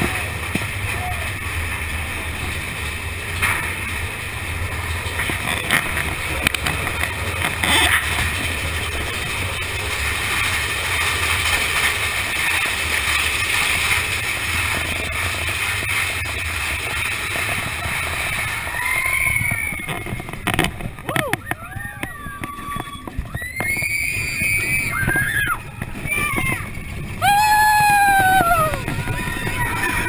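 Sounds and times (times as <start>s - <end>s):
roller coaster train rumbling and rattling: 0.0s - 30.0s.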